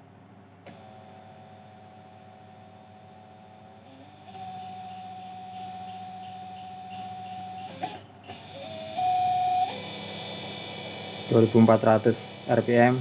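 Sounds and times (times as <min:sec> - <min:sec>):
electric motor whine: 0:03.2 - 0:13.0.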